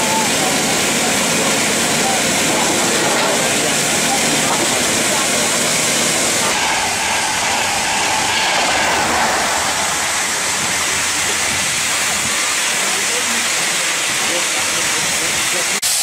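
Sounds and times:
express train rushing past: 0.0 - 16.0.

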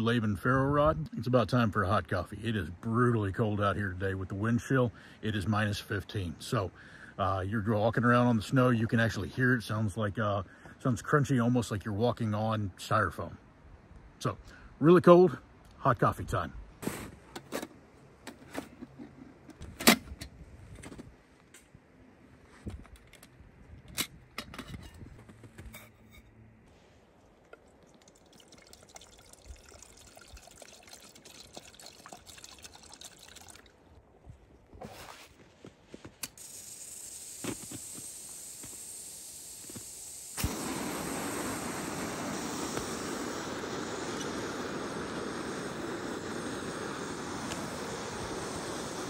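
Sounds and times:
gas hissing from burner: 36.2 - 49.0
stove burner roaring: 36.3 - 49.0
igniter strike: 37.2 - 46.4.

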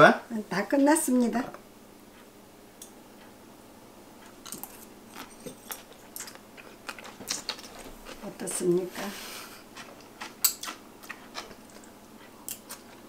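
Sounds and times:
crunching while eating: 4.2 - 8.3, 9.5 - 13.0
chopsticks clicking: 10.2 - 13.0.

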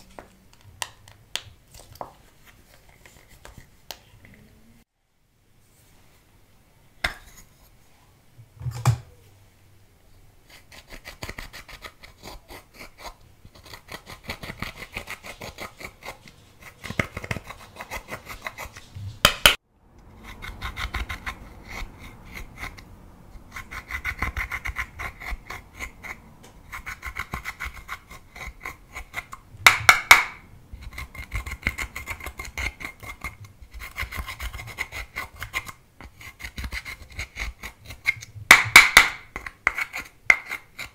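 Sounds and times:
tool scraping eyeshadow: 10.5 - 19.6, 20.2 - 40.9.

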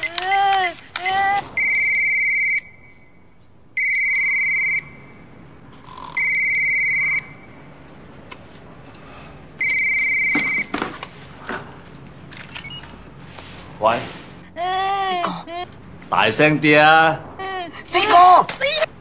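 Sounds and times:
cordless phone ringer trilling: 5.9 - 7.3.

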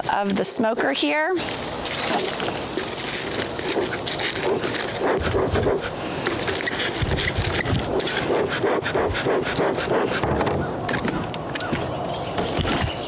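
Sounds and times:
leaves and cardboard crackling: 0.0 - 5.1.

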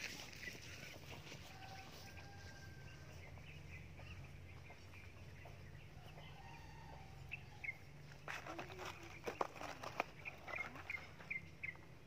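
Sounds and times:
bird chirps and calls: 0.0 - 12.0.

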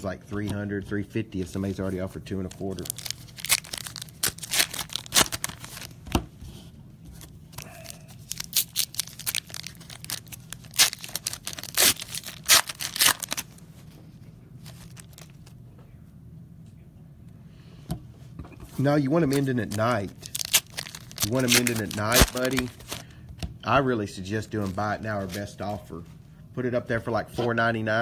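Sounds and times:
plastic wrapper tearing and crinkling: 2.5 - 6.0, 7.6 - 13.6, 14.6 - 15.5, 19.2 - 23.0.

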